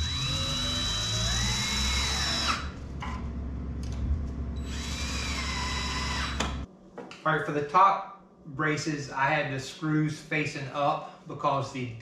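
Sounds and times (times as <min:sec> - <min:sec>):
cordless drill driving screws: 0:00.0 - 0:02.7, 0:04.6 - 0:06.6.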